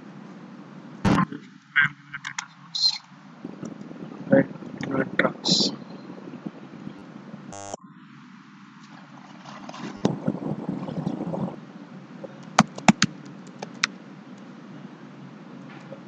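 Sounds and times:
low rumbling noise: 0:09.8 - 0:12.4.

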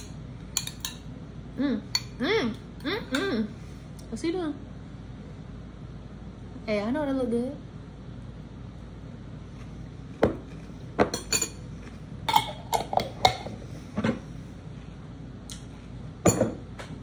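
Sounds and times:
metal spoon clinking on glass bowl: 0:00.0 - 0:01.0, 0:11.1 - 0:11.6.

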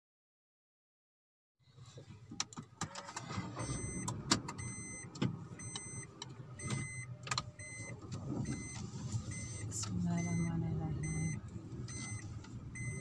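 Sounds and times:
car engine idling: 0:01.7 - 0:13.0
dashboard warning chime beeping: 0:03.3 - 0:13.0.

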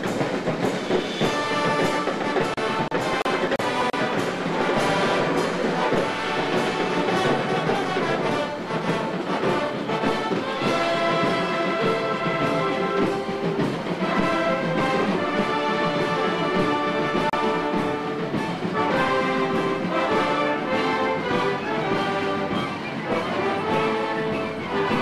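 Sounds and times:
brass band playing a march: 0:00.0 - 0:25.0.

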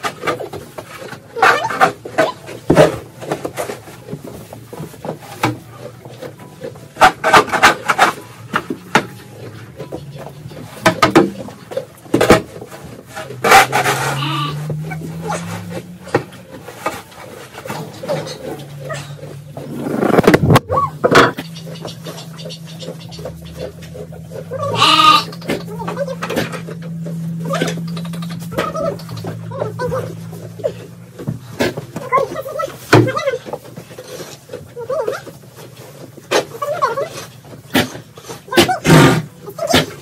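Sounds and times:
metal shovel scraping floor: 0:10.6 - 0:21.4.

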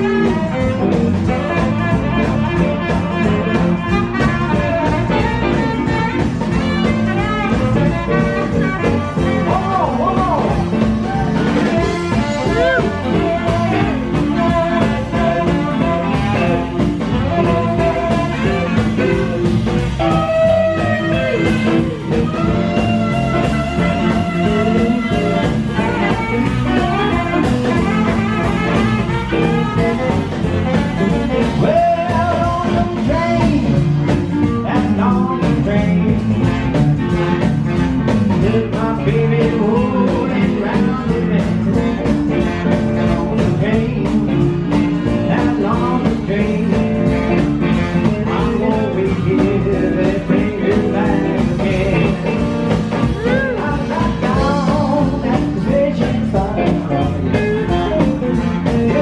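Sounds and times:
drums: 0:00.0 - 0:59.0
electric guitar: 0:00.0 - 0:59.0
electric keyboard: 0:00.0 - 0:59.0
saxophones: 0:11.0 - 0:31.4.

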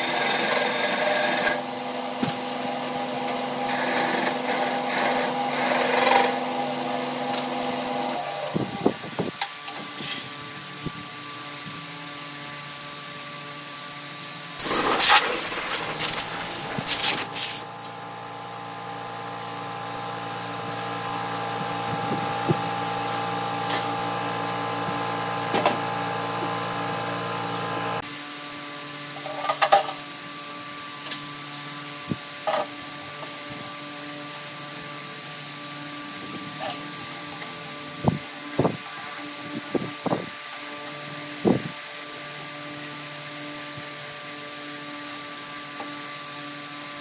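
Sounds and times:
lathe scraping wood: 0:00.0 - 0:09.0
lathe motor hum: 0:00.0 - 0:09.8.

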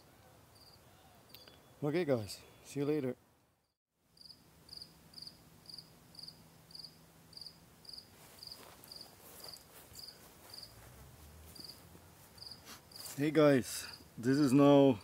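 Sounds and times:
cricket chirping: 0:00.5 - 0:01.6, 0:04.2 - 0:10.7, 0:11.6 - 0:11.8, 0:12.4 - 0:13.1.

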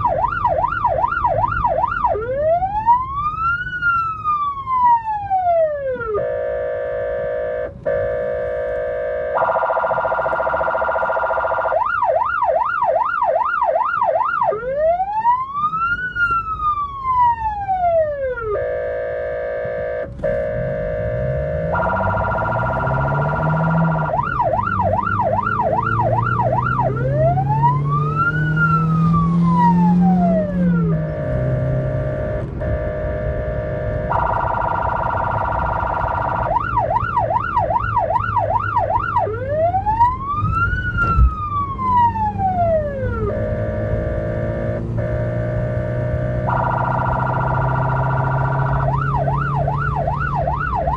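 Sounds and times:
ambulance siren cycling tones: 0:00.0 - 0:50.9
vehicle engine accelerating: 0:20.1 - 0:50.9.

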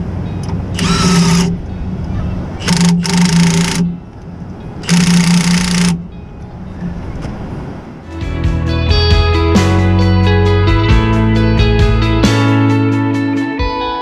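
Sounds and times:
cordless power tool whirring: 0:00.8 - 0:01.6, 0:02.6 - 0:03.9, 0:04.8 - 0:06.0.

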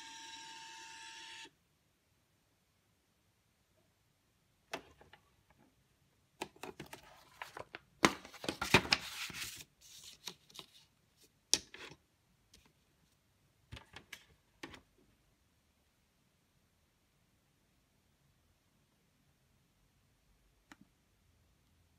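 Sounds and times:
paper rustling: 0:06.6 - 0:10.9.

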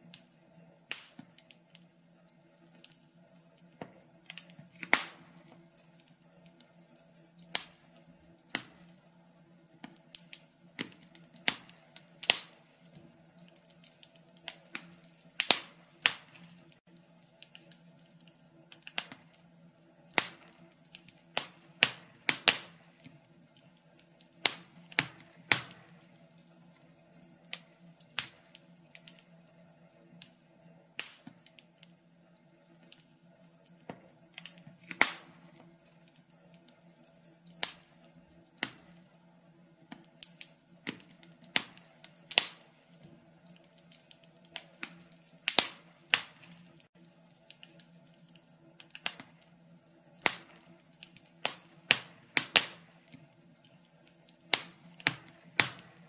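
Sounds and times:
faint steady hum: 0:00.0 - 0:56.0
fire crackling and popping: 0:00.0 - 0:56.0.

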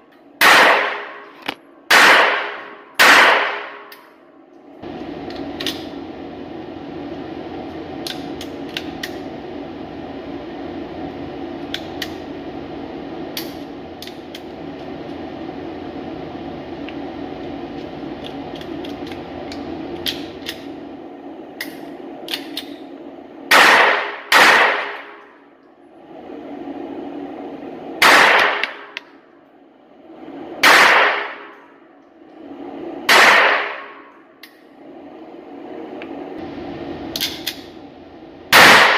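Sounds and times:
ventilation hum: 0:00.0 - 0:38.9
handgun shots ringing indoors: 0:00.4 - 0:04.1, 0:23.5 - 0:25.3, 0:28.0 - 0:29.0, 0:30.6 - 0:31.6, 0:33.1 - 0:34.1, 0:38.5 - 0:38.9.

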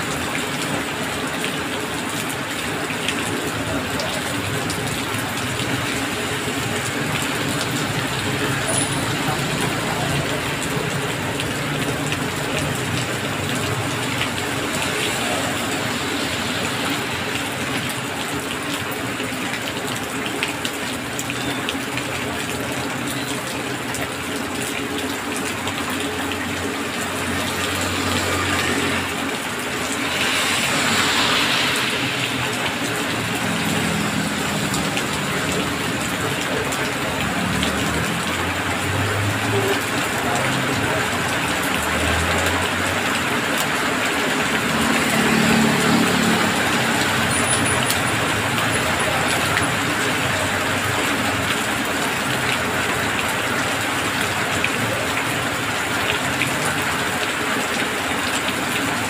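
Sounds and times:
heavy rain falling: 0:00.0 - 0:59.0
tyres hissing on wet road: 0:00.0 - 0:59.0
vehicles passing through water: 0:00.0 - 0:59.0.

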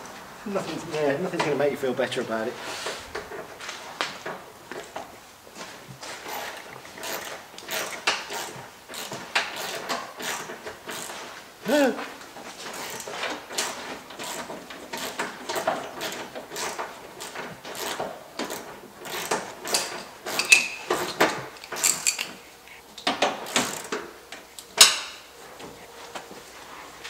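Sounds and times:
hand tools clattering on metal: 0:06.2 - 0:22.4.

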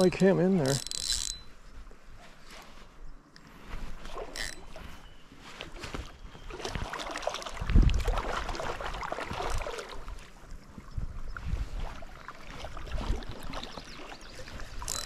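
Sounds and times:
water sloshing and splashing: 0:03.5 - 0:15.0.

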